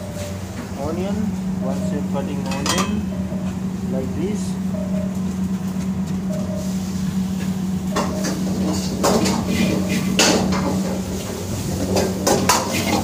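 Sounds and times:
low hum: 0.0 - 13.0
utensils clinking on metal cookware: 2.4 - 3.1, 11.7 - 13.0.

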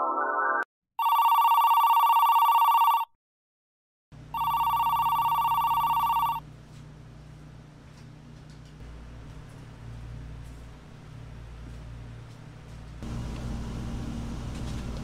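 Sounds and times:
telephone ringing electronic trill: 1.0 - 3.1, 4.3 - 6.4.

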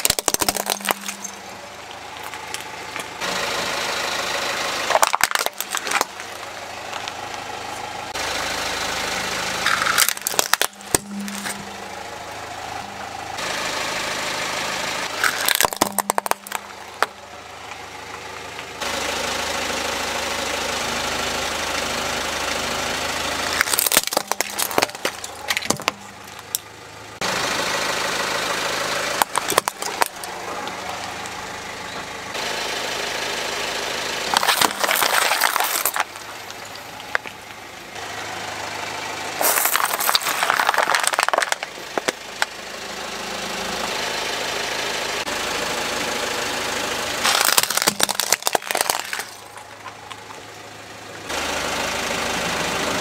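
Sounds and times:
tyre crushing plastic: 0.0 - 1.4, 4.9 - 6.4, 9.6 - 11.6, 15.2 - 17.1, 23.6 - 26.6, 29.2 - 30.4, 34.3 - 37.5, 39.4 - 42.2, 47.2 - 50.4
car engine idling: 0.0 - 53.0.

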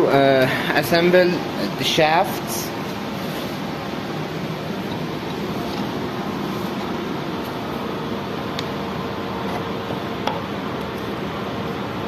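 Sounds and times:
fan-like background noise: 0.0 - 12.0.

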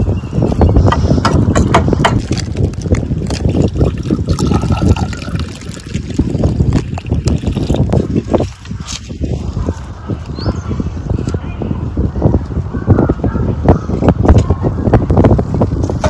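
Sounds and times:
liquid pouring into a glass: 2.2 - 8.0.

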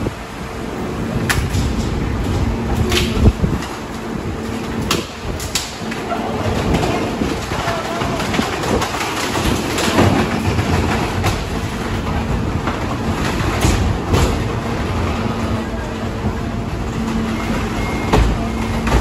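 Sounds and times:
garbage truck engine and hydraulics: 0.0 - 19.0
wood cracking and clattering: 4.7 - 15.4.

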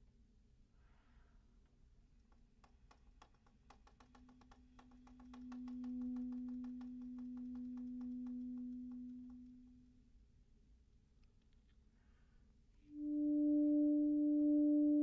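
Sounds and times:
long saxophone note: 12.9 - 15.0.

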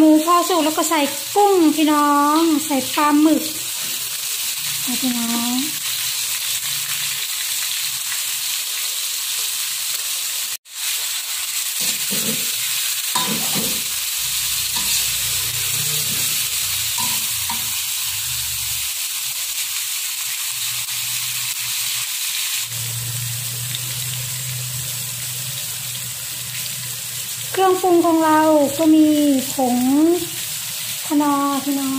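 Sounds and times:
food sizzling in hot oil: 0.0 - 31.9
metal ladle stirring in wok: 11.8 - 17.8.

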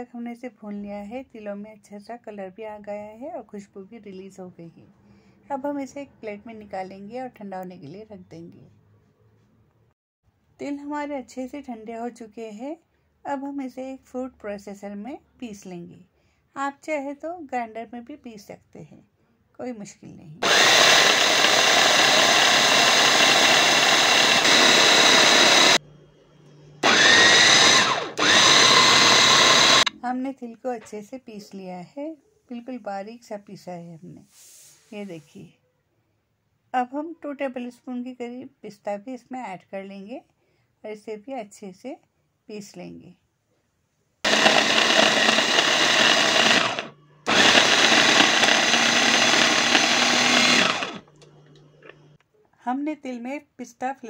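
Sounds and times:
mini chopper grinding seeds: 20.4 - 25.8, 26.8 - 29.9, 44.3 - 52.2.

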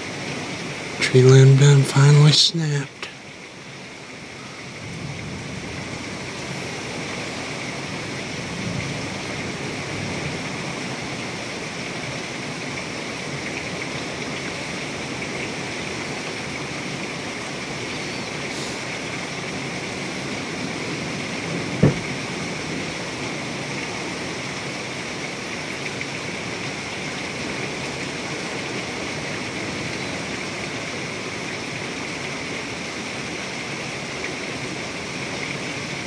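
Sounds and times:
heavy rain pouring: 0.0 - 36.0.

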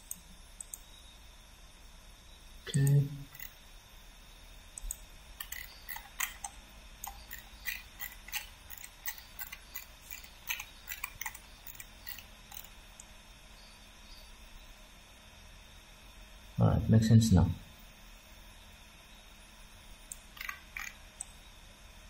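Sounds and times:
computer mouse clicking: 0.0 - 0.9, 2.7 - 3.5, 4.8 - 13.1, 20.0 - 21.4.

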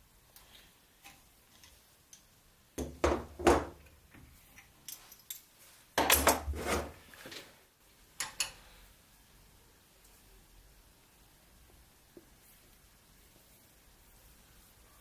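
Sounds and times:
metal tools clinking: 4.6 - 5.5.

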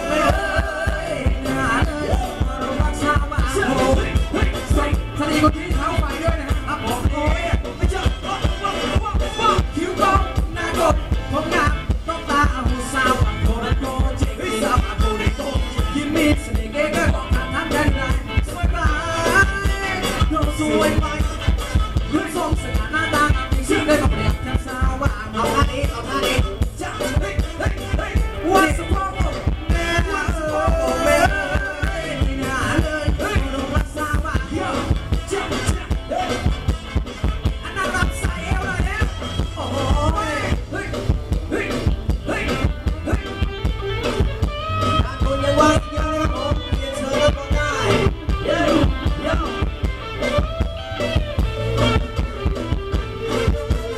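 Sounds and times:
person singing: 0.0 - 36.6, 45.0 - 49.8
bass drum beat: 0.0 - 53.9
live band dance music: 0.0 - 53.9.

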